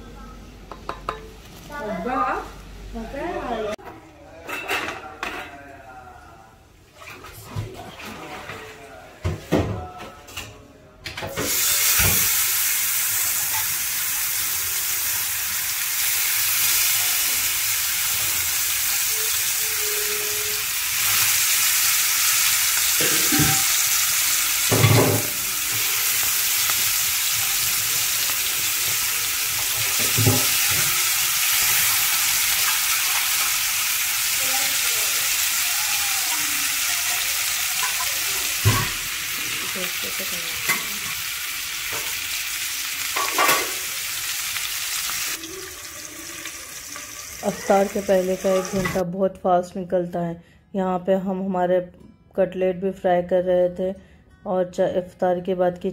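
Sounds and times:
chicken sizzling in hot oil: 11.4 - 49.0.

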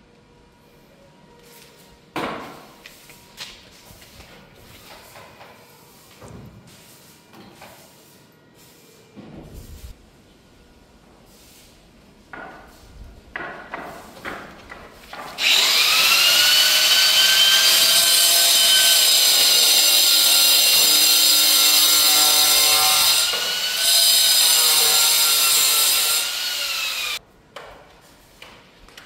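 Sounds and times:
angle grinder cutting stone: 15.4 - 27.2.

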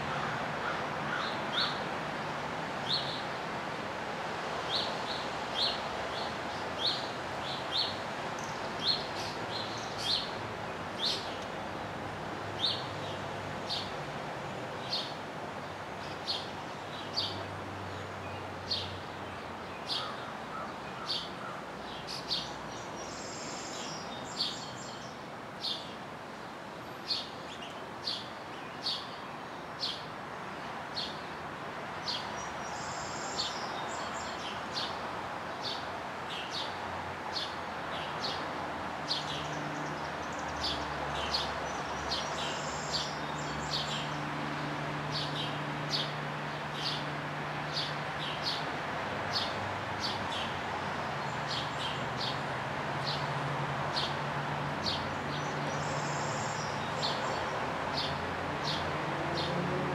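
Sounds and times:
background hiss: 0.0 - 59.9
bird chirping: 39.1 - 44.2, 54.8 - 58.8.

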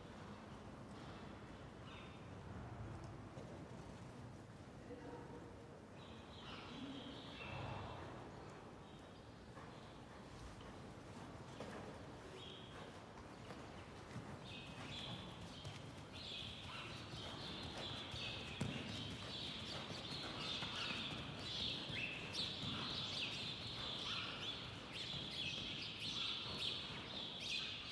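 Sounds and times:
horse trotting on sand: 9.4 - 27.9
birds chirping: 11.4 - 27.9.

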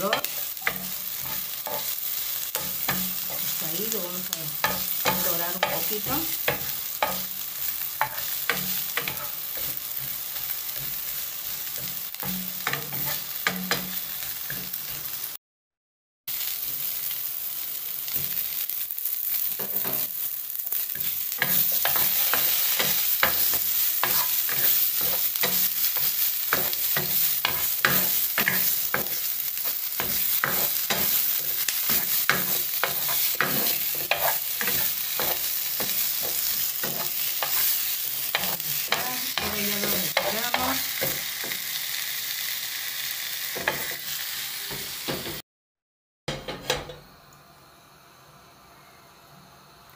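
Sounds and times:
vegetables sizzling in oil: 0.0 - 15.4, 16.3 - 45.4
wooden spoon scraping a pan: 8.0 - 13.8, 20.8 - 41.2.

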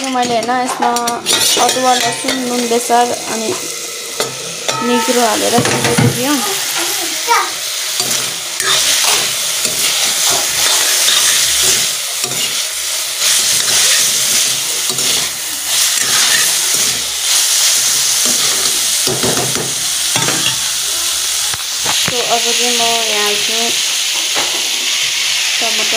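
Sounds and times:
vegetables sizzling in oil: 0.0 - 25.9
steel spoon stirring: 0.1 - 3.1, 4.2 - 6.4, 7.9 - 19.2.

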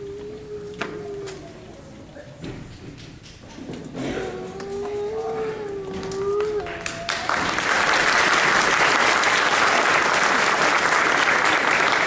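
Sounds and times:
audience applauding: 4.3 - 12.0.

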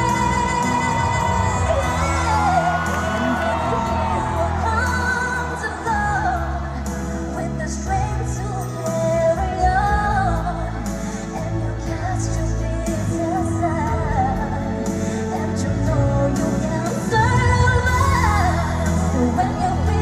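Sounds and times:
woman singing pop song: 0.0 - 20.0.

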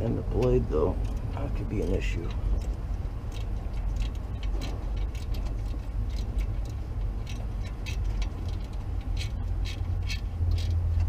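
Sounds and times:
steady low rumble: 0.0 - 11.0
small metallic clicks: 0.3 - 11.0.

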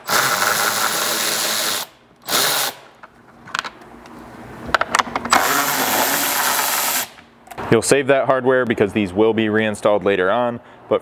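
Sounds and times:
electric ratchet running: 0.0 - 2.8, 5.3 - 7.2.

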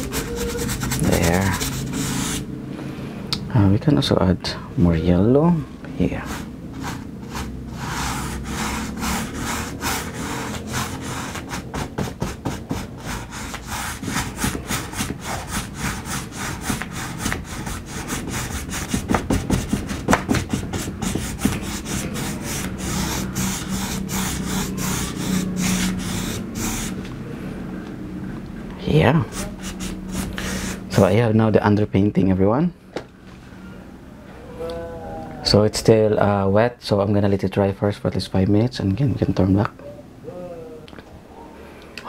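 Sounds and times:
brush scrubbing on canvas: 0.0 - 2.5, 6.1 - 27.0, 29.2 - 31.1.

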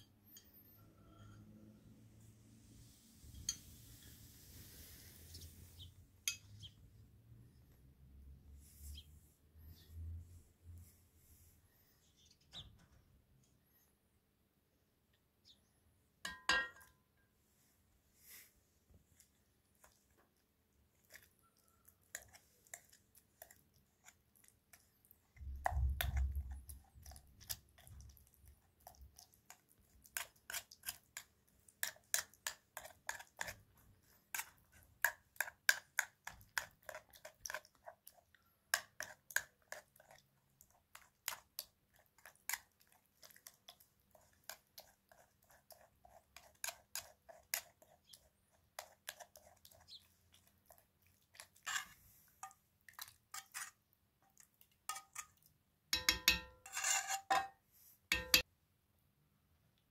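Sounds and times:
metal spoon scraping metal bowl: 16.3 - 16.9, 30.1 - 37.8, 44.1 - 50.0, 51.4 - 53.8, 54.9 - 58.4.

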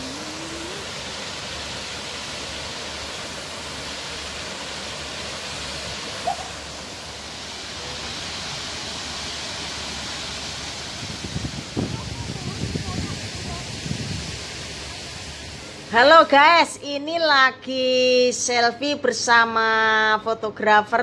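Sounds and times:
waterfall rushing: 0.0 - 16.1.

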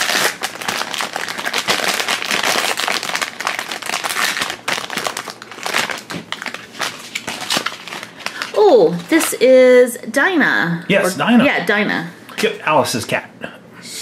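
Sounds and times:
plastic bag crinkling and tearing: 0.0 - 9.4.

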